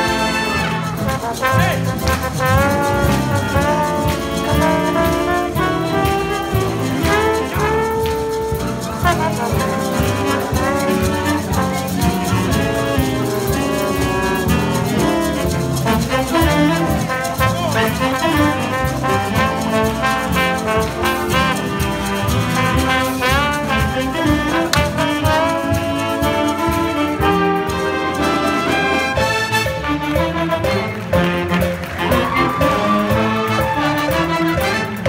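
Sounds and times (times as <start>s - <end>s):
jazz big band playing: 0.0s - 35.0s
trombone: 0.0s - 35.0s.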